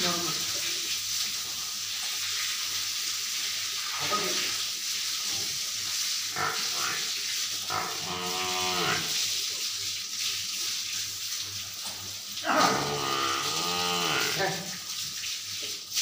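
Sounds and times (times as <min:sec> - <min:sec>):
hose water spraying on floor: 0:00.0 - 0:16.0
water buffalo lowing: 0:07.7 - 0:09.1, 0:12.4 - 0:14.4.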